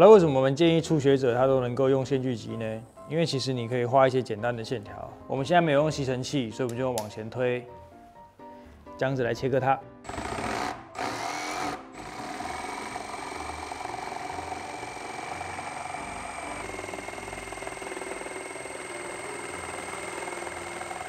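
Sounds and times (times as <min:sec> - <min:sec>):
jigsaw cutting wood: 0:10.1 - 0:21.0.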